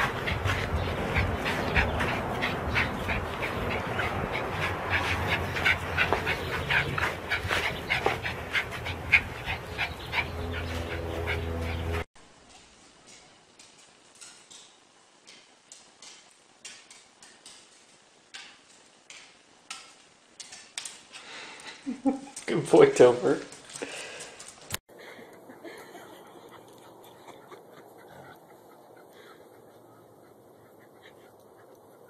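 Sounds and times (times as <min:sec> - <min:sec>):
dog claws clicking on tile: 0:13.1 - 0:21.3, 0:23.4 - 0:24.8.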